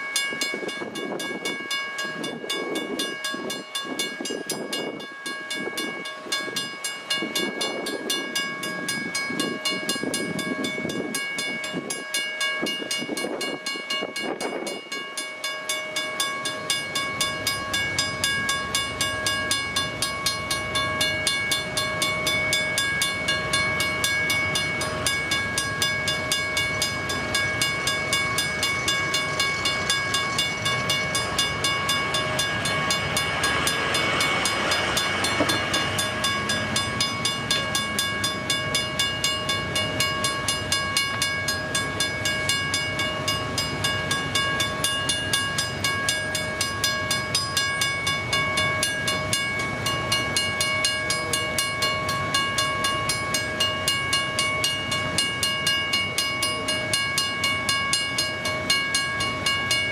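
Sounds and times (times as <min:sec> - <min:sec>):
railroad crossing bell ringing: 0:00.0 - 0:59.9
train wheel noise: 0:00.0 - 0:59.9.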